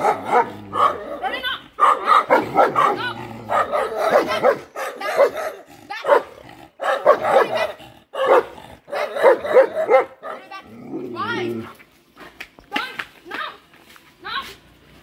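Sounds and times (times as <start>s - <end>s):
dogs barking: 0.0s - 10.6s.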